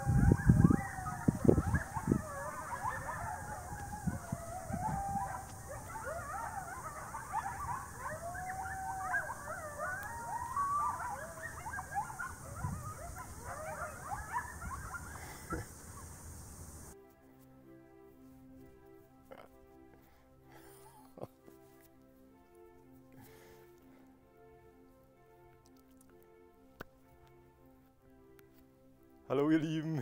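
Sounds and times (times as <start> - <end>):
wolves howling and yipping: 0.0 - 17.0.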